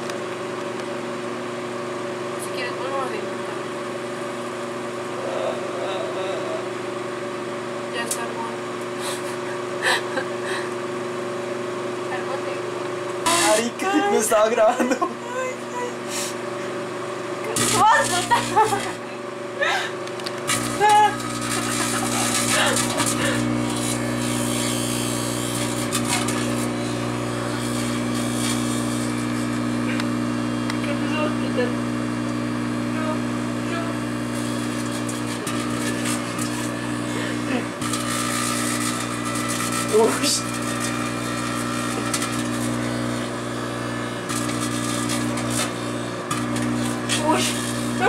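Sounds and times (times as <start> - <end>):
microwave oven hum: 0.0 - 48.0
plasma crackling and buzzing: 13.2 - 14.5, 17.5 - 19.1, 20.4 - 31.7, 33.0 - 48.0
plasma arcing crackle: 20.5 - 24.8.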